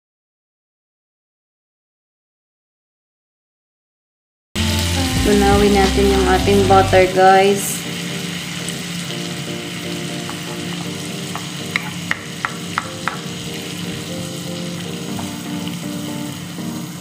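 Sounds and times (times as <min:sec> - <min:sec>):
butter sizzling in a wok: 0:04.6 - 0:17.0.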